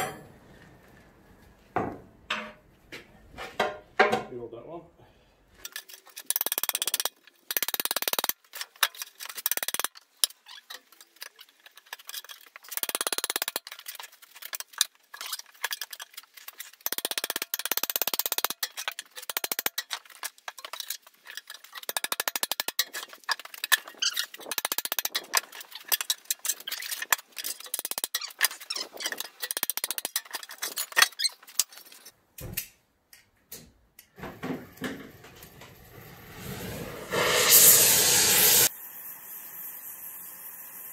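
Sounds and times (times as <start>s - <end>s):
tyre irons scraping on wheel rim: 5.6s - 32.1s.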